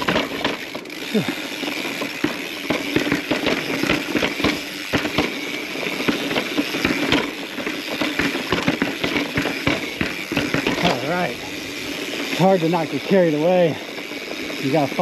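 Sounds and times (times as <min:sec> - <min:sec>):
bike rattling over rock: 0:00.0 - 0:15.0
steady rushing noise: 0:00.0 - 0:15.0
sharp knocks and clacks: 0:02.1 - 0:05.4, 0:06.0 - 0:11.0.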